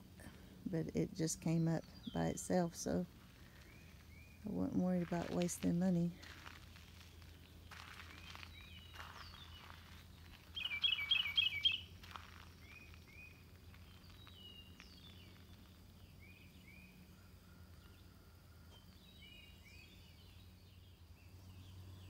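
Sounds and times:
songbirds chirping: 0:00.0 - 0:22.0.

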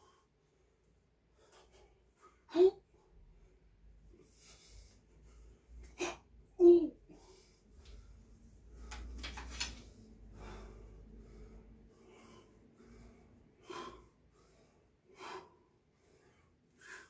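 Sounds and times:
man breathing sharply: 0:04.1 - 0:06.0, 0:10.1 - 0:17.0.

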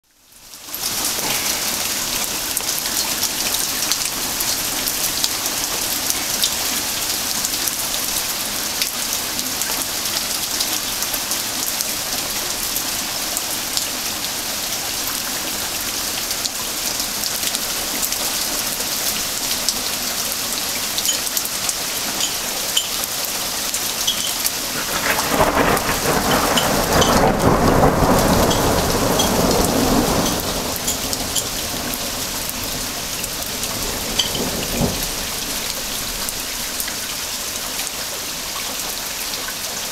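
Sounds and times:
heavy rain hissing: 0:00.3 - 0:39.9
thunder rumbling: 0:24.6 - 0:36.8.

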